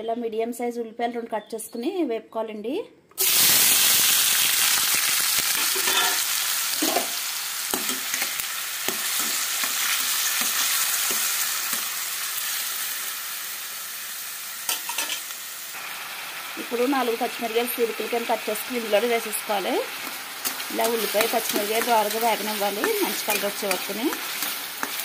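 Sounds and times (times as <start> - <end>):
onions sizzling in hot oil: 3.2 - 25.0
spatula scraping and tapping pan: 20.0 - 25.0.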